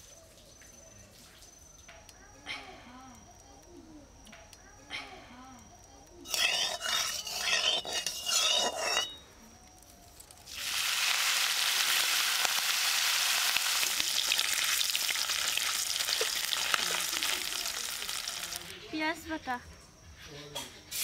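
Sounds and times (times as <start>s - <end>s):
metal spatula stirring: 6.3s - 9.2s
food sizzling in hot oil: 10.4s - 18.8s.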